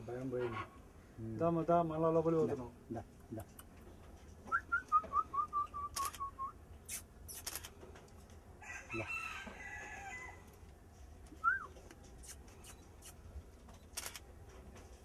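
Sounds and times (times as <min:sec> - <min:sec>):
rising whistle: 0:04.5 - 0:06.5, 0:11.4 - 0:11.7
bird whistled notes: 0:04.5 - 0:07.4, 0:11.4 - 0:12.8
sharp clicks: 0:05.9 - 0:08.2, 0:13.8 - 0:14.2.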